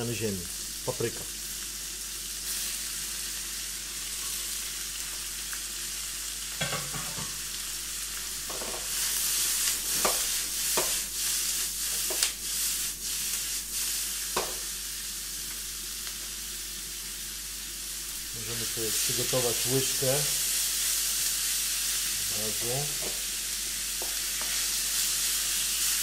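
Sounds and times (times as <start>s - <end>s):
vegetables sizzling in a wok: 0.0s - 26.0s
utensil knocking against wok: 6.6s - 7.4s, 14.4s - 14.6s.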